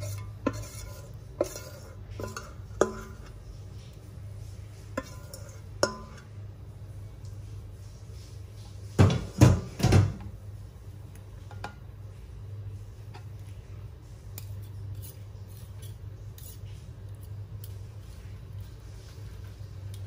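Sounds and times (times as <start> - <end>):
low steady hum: 0.0 - 20.0
kitchenware knocks: 9.0 - 10.2.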